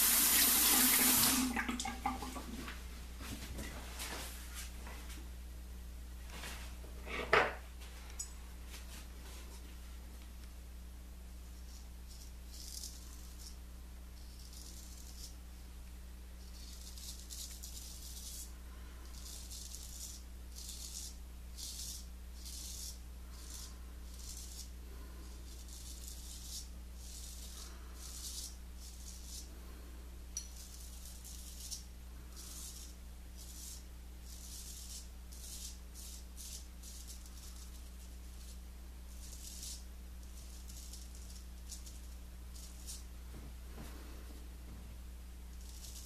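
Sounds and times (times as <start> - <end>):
razor rasping through stubble: 11.7 - 13.6, 16.4 - 29.5, 30.5 - 43.1, 45.5 - 46.0.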